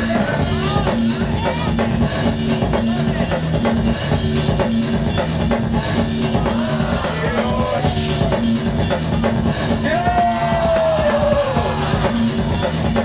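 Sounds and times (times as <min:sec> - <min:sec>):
dj music with drum beat: 0:00.0 - 0:13.0
repeating bass line: 0:00.0 - 0:13.0.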